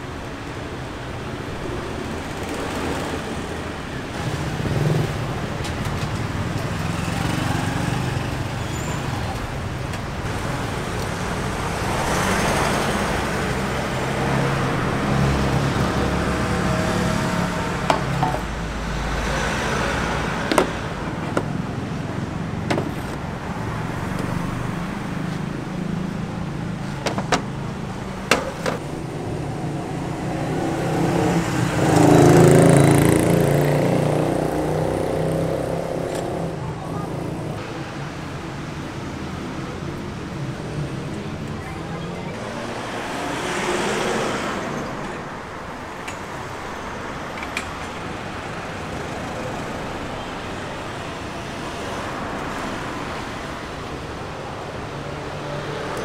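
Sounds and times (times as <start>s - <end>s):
vehicles passing: 0.0s - 56.0s
sharp knocks: 20.4s - 21.6s, 22.6s - 23.2s, 27.0s - 27.6s, 28.2s - 28.9s.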